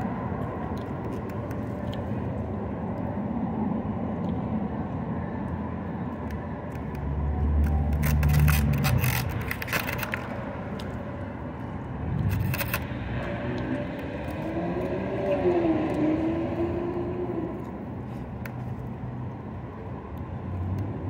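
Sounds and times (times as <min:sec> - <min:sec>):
background traffic: 0:00.0 - 0:21.0.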